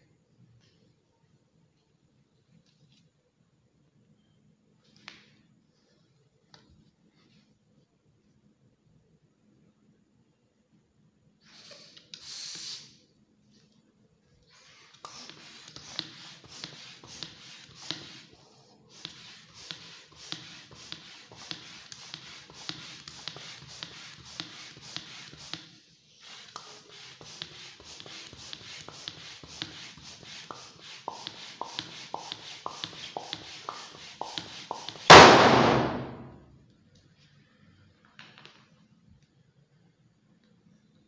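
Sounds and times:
hand pump strokes with air hiss: 11.4 - 13.0, 14.5 - 35.3
balloon bursting with loud pop: 35.1 - 36.4.

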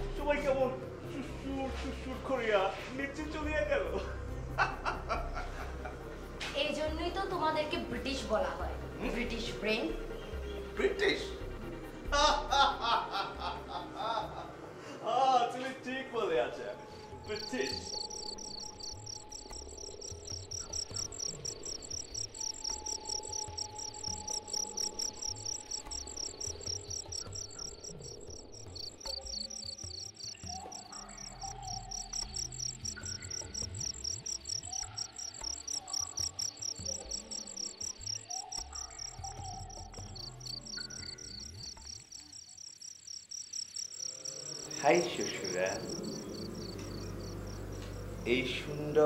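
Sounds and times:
crickets chirping: 0.0 - 15.0, 16.0 - 49.0.

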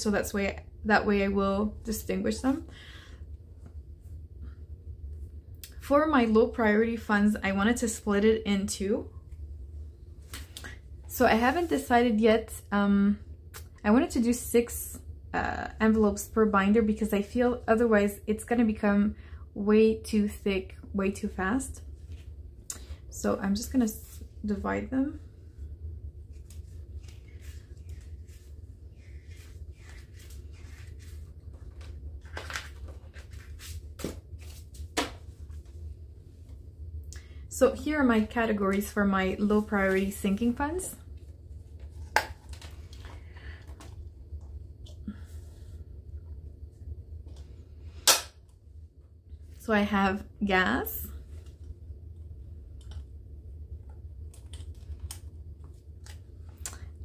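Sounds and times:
plastic envelopes rustling: 26.3 - 35.8.

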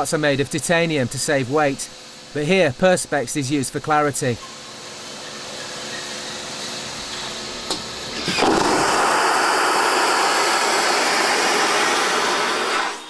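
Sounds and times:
steady hum: 0.0 - 13.0
vacuum toilet flush rush of air: 8.0 - 13.0.

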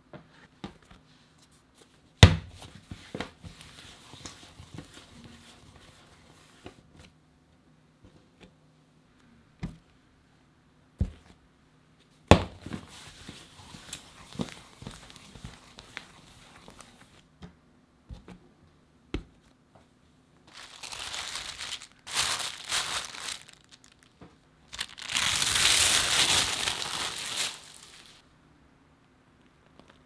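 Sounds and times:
soft rubbing of dough: 0.3 - 7.2, 11.2 - 17.3.

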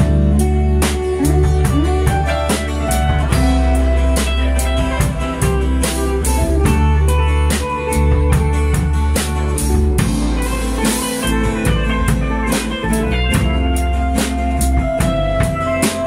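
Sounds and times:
bass guitar: 0.0 - 16.0
drum kit steady beat: 0.0 - 16.0
guitar lines: 0.0 - 16.0.

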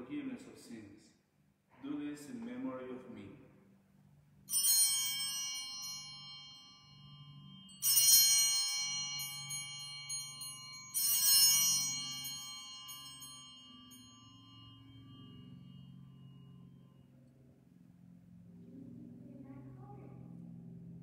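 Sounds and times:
altar bells ringing: 4.4 - 18.6.

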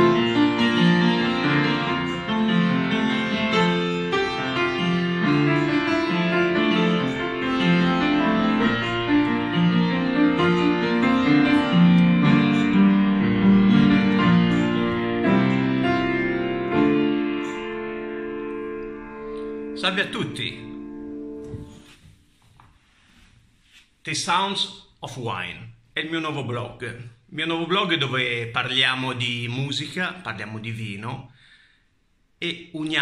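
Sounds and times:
upright piano chords and melody: 0.0 - 22.0.

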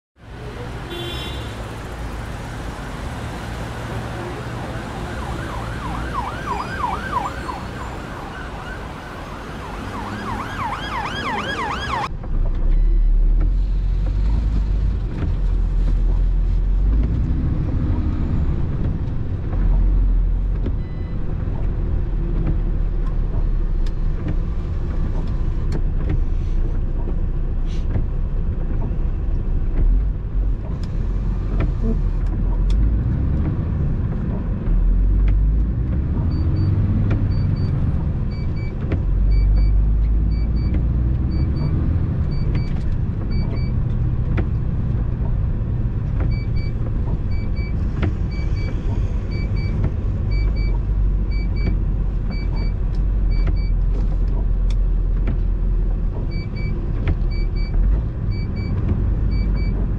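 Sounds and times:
city street traffic: 0.2 - 59.9
truck engine drone: 0.2 - 59.9
emergency siren wailing: 3.8 - 12.1.

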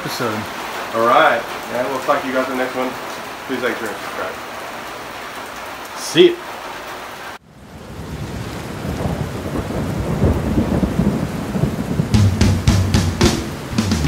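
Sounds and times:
rain: 0.0 - 14.0
rolling rumble of thunder: 7.6 - 13.9
sharp thunder cracks: 8.2 - 14.0.

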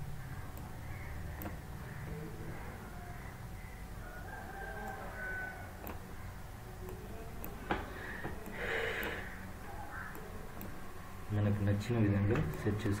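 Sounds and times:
steady low hum: 0.0 - 13.0
computer mouse clicks: 0.5 - 1.6, 4.7 - 5.1, 5.8 - 6.0, 6.8 - 9.3, 10.0 - 10.8.

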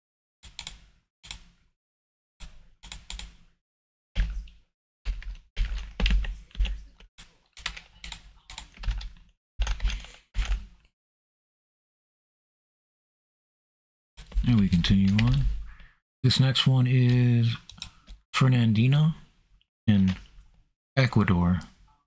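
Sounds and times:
computer keyboard typing: 2.8 - 3.4, 4.2 - 10.8, 14.2 - 15.6, 17.0 - 18.2, 19.9 - 20.3.

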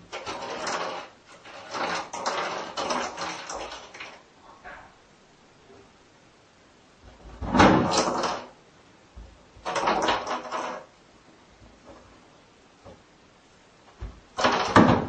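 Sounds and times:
cat scraping and bumping a bowl: 0.0 - 4.9.

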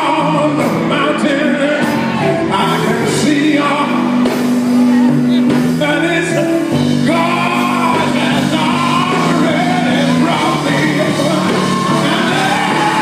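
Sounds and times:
band playing held low notes: 0.0 - 13.0
man singing into microphone: 0.0 - 13.0
congregation shouting: 8.6 - 13.0.

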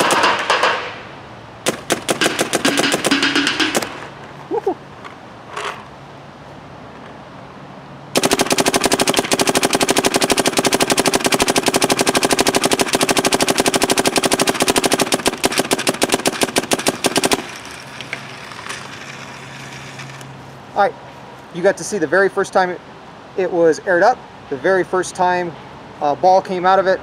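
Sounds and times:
paintball marker rapid firing: 0.0 - 1.0, 1.6 - 4.1, 8.2 - 17.8.

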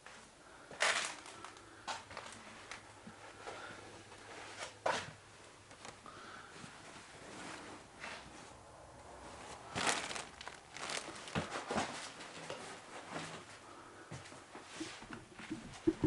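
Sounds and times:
bedding fabric rustling: 9.4 - 13.4.

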